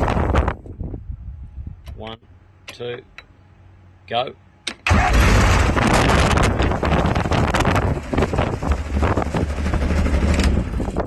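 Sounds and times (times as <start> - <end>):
aircraft engine running: 4.8 - 11.0.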